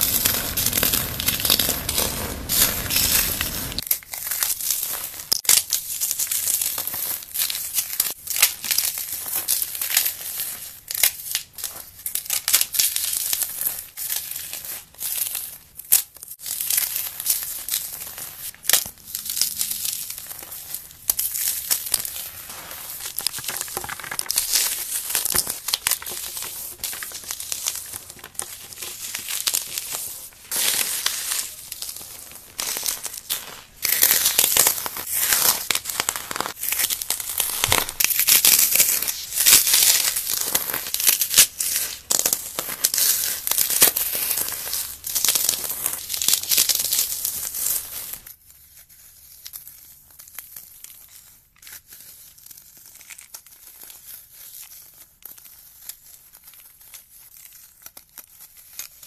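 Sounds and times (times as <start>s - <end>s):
floral foam crunching: 0.0s - 3.9s, 19.7s - 48.2s.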